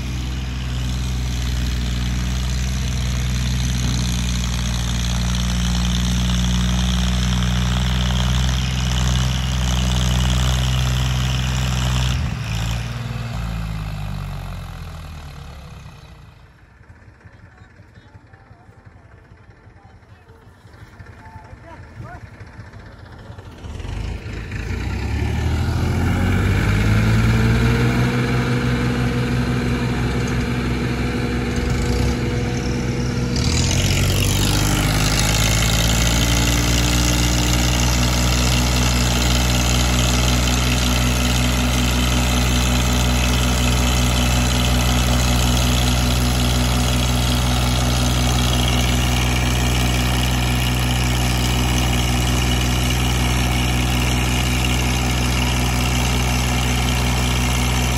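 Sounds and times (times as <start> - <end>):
tractor diesel engine revving: 0.0 - 57.9.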